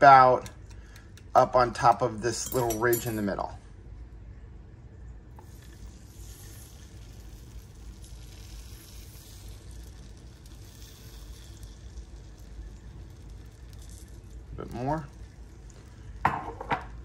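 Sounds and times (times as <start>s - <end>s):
eggs sizzling on hot plate: 5.4s - 17.0s.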